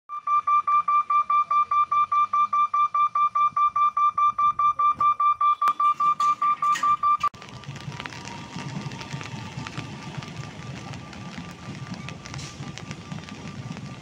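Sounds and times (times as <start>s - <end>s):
level-crossing alarm beeping: 0.1s - 7.3s.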